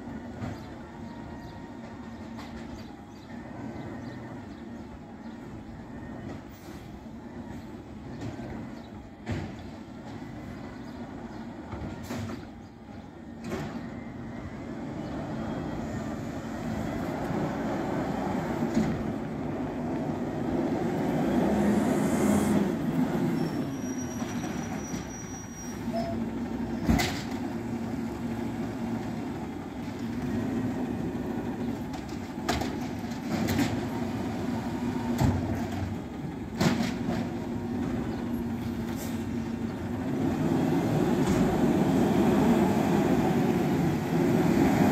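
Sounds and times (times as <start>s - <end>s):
garbage truck engine running: 0.0s - 44.9s.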